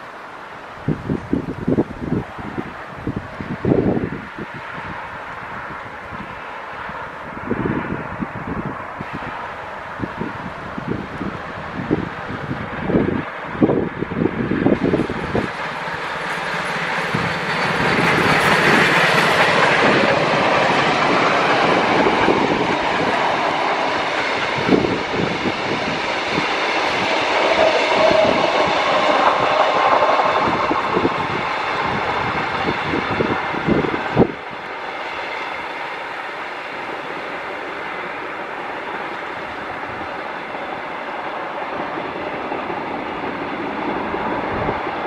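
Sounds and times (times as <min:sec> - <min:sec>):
train rumble: 0:00.0 - 0:45.0
train wheels clattering over rail joints: 0:14.7 - 0:34.3.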